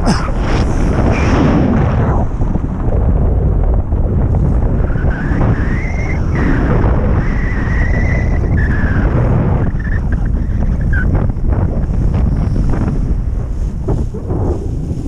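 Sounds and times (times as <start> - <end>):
wind buffeting microphone: 0.0 - 15.0
thin whine: 4.5 - 11.8.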